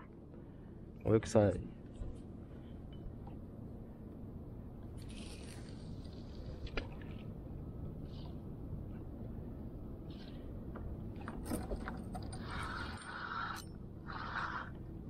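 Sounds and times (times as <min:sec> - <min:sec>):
spinning reel cranking: 0:12.2 - 0:14.7.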